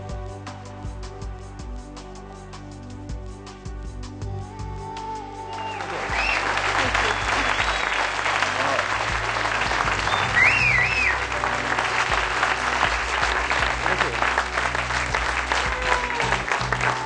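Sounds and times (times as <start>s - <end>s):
loud background music: 0.0s - 17.0s
audience clapping: 5.6s - 17.0s
short warbling whistle: 10.0s - 11.2s.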